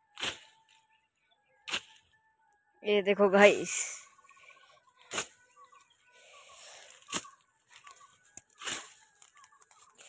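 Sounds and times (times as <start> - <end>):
footsteps through dry grass: 3.4 - 10.0.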